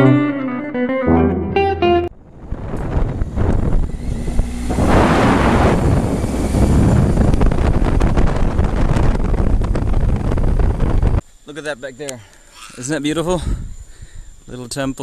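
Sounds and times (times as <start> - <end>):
wind rush on microphone: 2.2 - 11.2, 13.4 - 14.4
motorcycle engine riding: 2.9 - 11.2.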